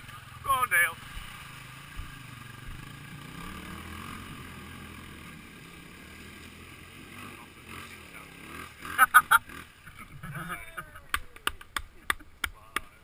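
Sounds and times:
motorcycle engine idling: 0.0 - 3.6.

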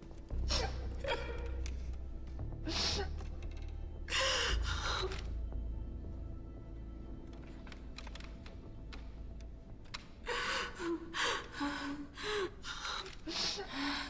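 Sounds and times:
woman sobbing: 0.4 - 1.6.

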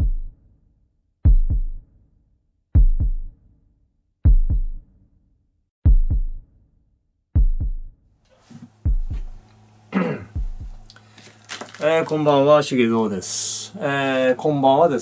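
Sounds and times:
heartbeat thumps: 0.0 - 0.3, 1.3 - 1.8, 2.8 - 3.3, 4.3 - 4.8, 5.8 - 6.4, 7.4 - 7.9, 8.8 - 9.4, 10.3 - 10.9.

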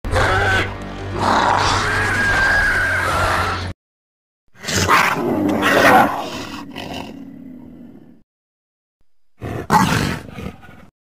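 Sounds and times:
creature roar: 0.1 - 3.7, 4.6 - 7.4.

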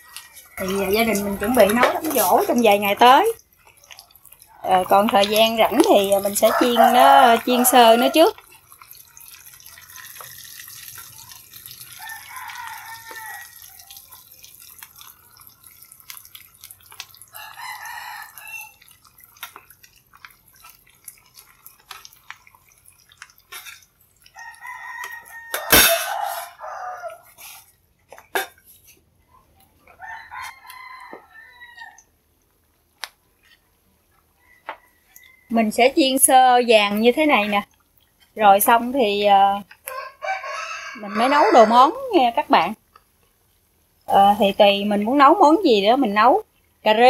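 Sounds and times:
oil sizzling in a frying pan: 0.0 - 27.8
rooster crowing: 6.3 - 8.3, 11.9 - 14.0, 17.3 - 18.8, 24.4 - 27.3, 30.0 - 32.1, 39.8 - 41.9.

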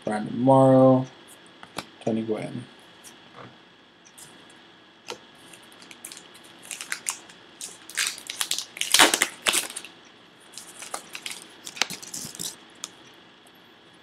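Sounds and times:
wrapper tearing and crinkling: 5.6 - 9.9, 10.6 - 12.9.

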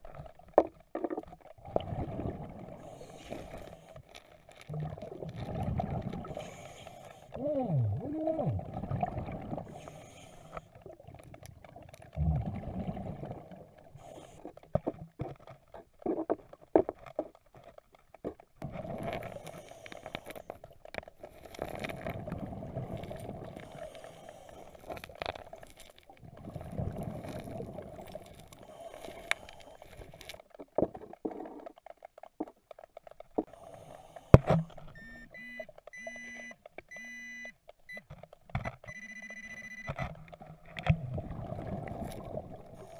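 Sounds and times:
underwater bubbling rumble: 0.0 - 3.9, 4.7 - 6.7, 7.4 - 10.0, 10.8 - 17.4, 18.6 - 19.9, 20.6 - 31.8, 40.4 - 42.9
metal detector beeping: 35.0 - 40.0.

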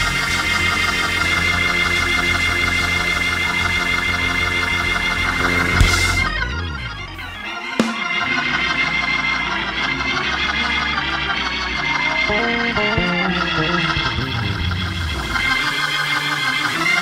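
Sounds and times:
organ playing held chords: 0.0 - 17.0
sharp drum hit: 5.8 - 6.3.

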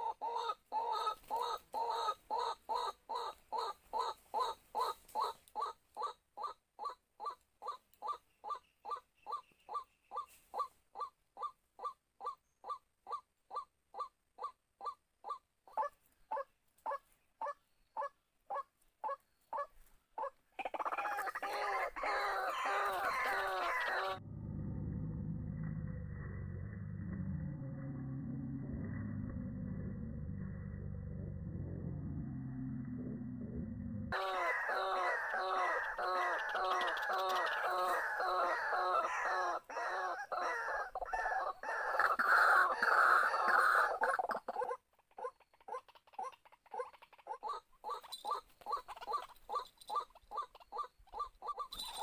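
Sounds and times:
overlapping croaking calls: 0.0 - 24.2, 34.1 - 52.0
waterhens calling: 15.8 - 24.2, 34.1 - 52.0.

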